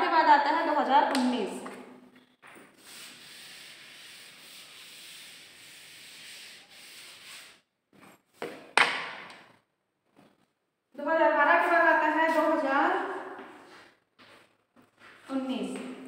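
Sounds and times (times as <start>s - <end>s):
duster scrubbing chalkboard: 2.6s - 7.7s.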